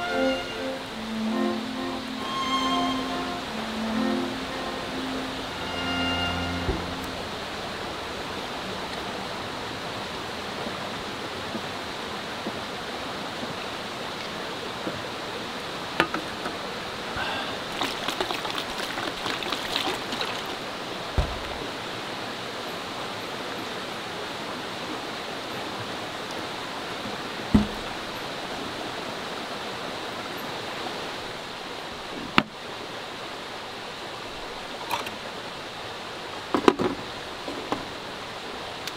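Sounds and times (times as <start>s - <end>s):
stream water rushing: 0.0s - 38.9s
dull thump: 21.1s - 21.7s, 27.5s - 28.1s.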